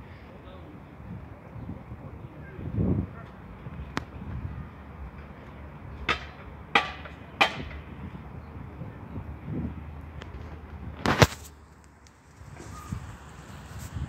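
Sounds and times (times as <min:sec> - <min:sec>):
sharp knocks: 0:06.1 - 0:07.8.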